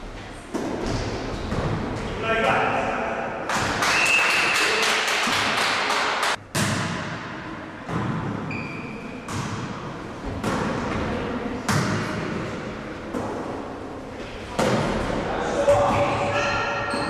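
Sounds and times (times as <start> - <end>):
volleyball hits echoing: 5.2 - 8.5, 9.2 - 12.5, 14.5 - 17.0.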